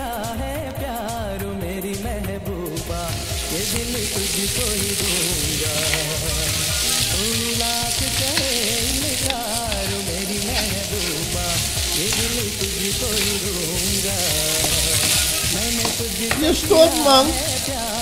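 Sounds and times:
background music: 0.0 - 18.0
chicken sizzling in oil: 2.7 - 18.0
plastic spatula scraping: 3.4 - 16.7.

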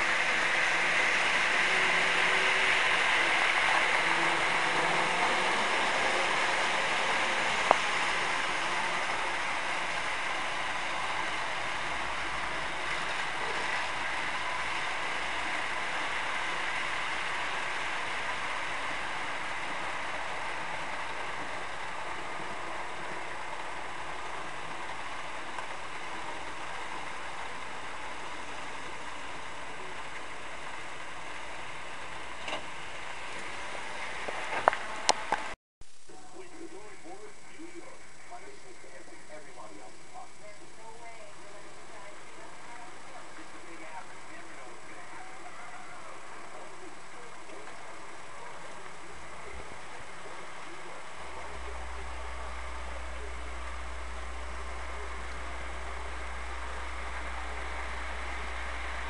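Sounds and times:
model train rolling hiss: 0.0 - 59.0.

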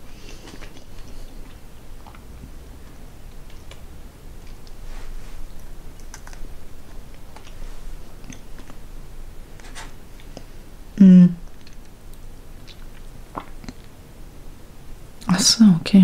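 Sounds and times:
mouth chewing gum with wet smacks: 0.2 - 2.3, 5.5 - 8.9, 11.4 - 14.0.

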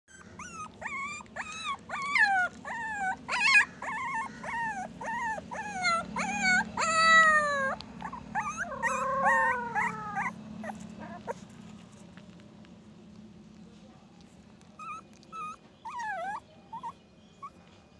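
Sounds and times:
puppy whimpering and crying: 0.1 - 11.5, 14.8 - 17.7.

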